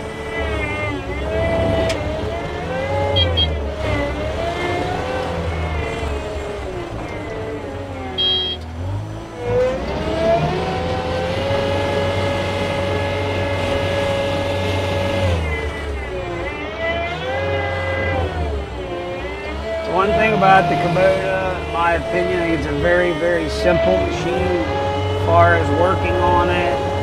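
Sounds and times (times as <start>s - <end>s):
diesel engine running under load: 0.0s - 27.0s.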